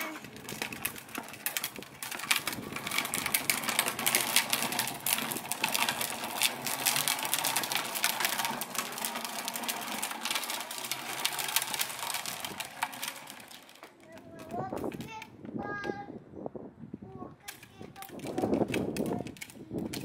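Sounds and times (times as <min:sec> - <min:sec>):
plastic wheels rattling on concrete: 0:00.0 - 0:16.0, 0:17.3 - 0:20.0.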